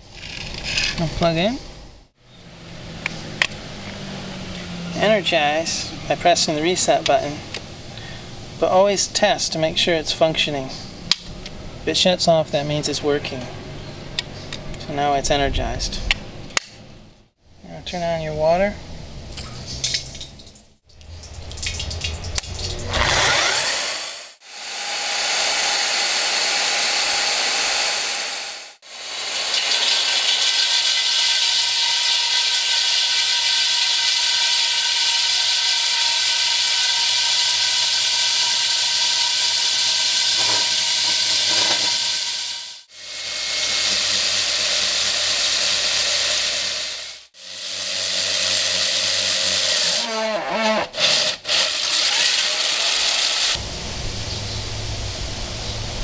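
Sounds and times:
drill bit cutting wet concrete: 22.8 - 53.6
core drill motor whining: 22.9 - 52.5.

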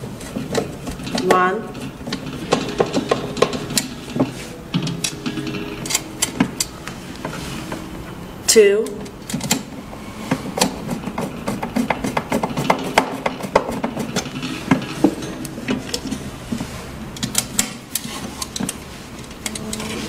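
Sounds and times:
cover knocking: 0.4 - 8.1, 9.4 - 15.9
screwdriver clicking and scraping: 17.2 - 20.0.

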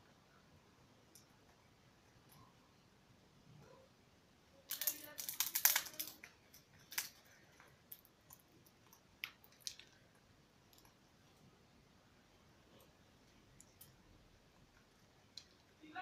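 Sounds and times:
parrot crunching twig ball: 4.7 - 10.1.

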